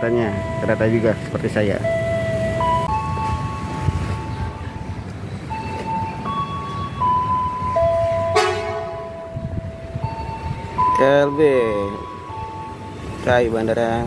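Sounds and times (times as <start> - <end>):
simple melody of clear tones: 0.0 - 13.2
low station rumble: 0.0 - 14.0
train horn blast: 8.3 - 9.2.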